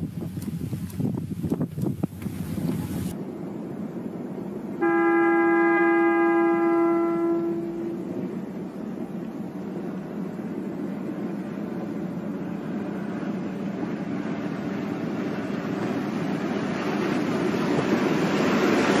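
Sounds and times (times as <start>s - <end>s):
locomotive pushing snowplow: 0.0s - 4.6s.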